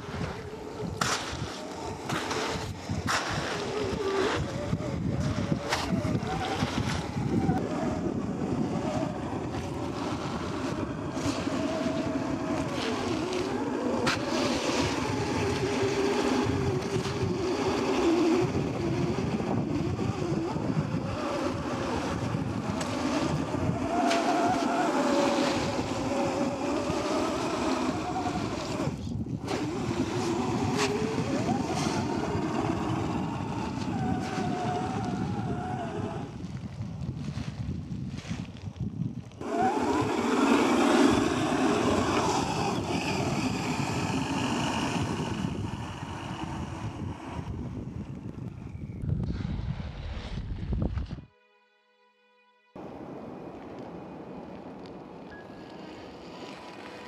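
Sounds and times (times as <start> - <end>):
tyres crunching on gravel: 0.0 - 6.0
electric motor whining: 0.0 - 36.4, 39.4 - 48.8.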